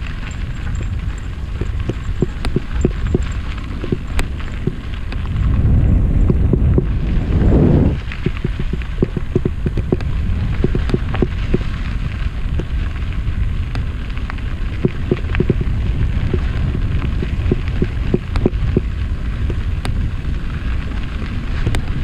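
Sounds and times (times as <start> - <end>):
bike clicks and rattles: 0.0 - 7.4, 8.0 - 22.0
bike tyres crackling on dirt: 0.0 - 22.0
wind rumble on microphone: 0.0 - 22.0.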